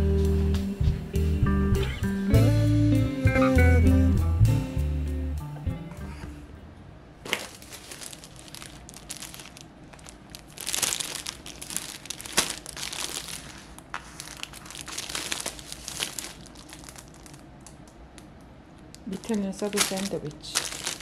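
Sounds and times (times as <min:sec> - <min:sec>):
sandwich wrapping crinkling: 0:07.2 - 0:17.8, 0:18.8 - 0:21.0
sharp crackle of wrapping: 0:07.3 - 0:17.8, 0:18.9 - 0:21.0.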